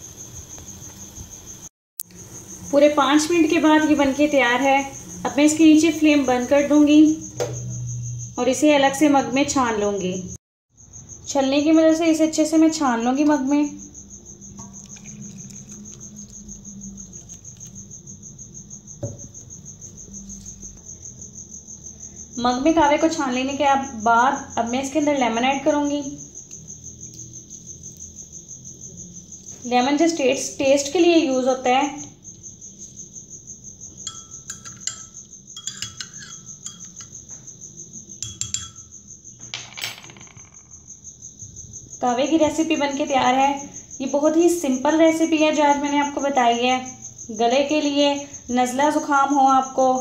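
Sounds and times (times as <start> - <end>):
pulsing insect chirp: 0.0 - 50.0
spoon clinking in glass mug: 34.0 - 37.2, 38.2 - 38.9.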